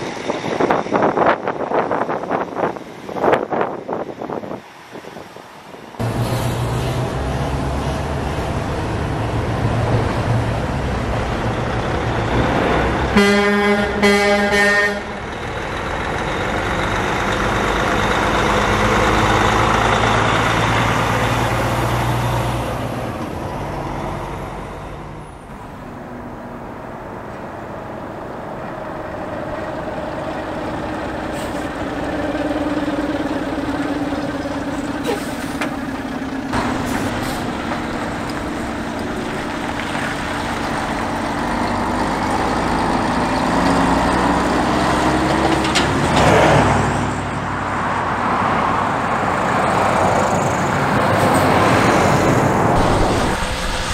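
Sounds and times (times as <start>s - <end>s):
truck diesel engine: 0.0s - 53.9s
truck horn blasts: 13.1s - 15.2s.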